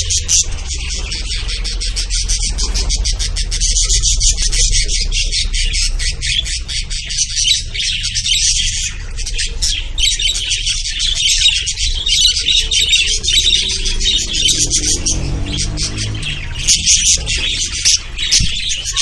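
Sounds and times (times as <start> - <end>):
lovebirds chirping and squawking: 0.0 - 19.0.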